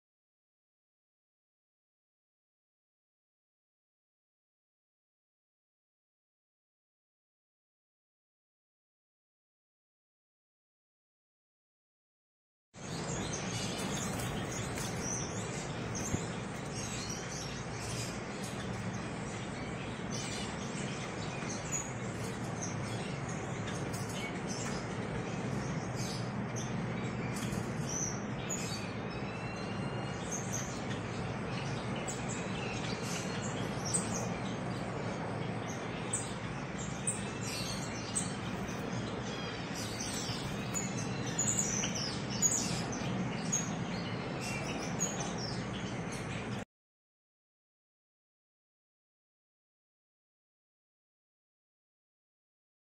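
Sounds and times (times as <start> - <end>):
finches chirping: 12.8 - 46.6.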